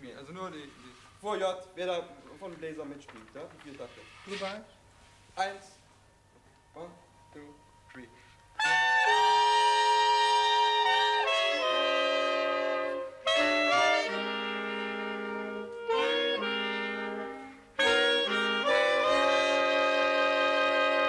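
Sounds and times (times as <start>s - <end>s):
clarinets and trumpet playing chords: 8.1s - 21.0s.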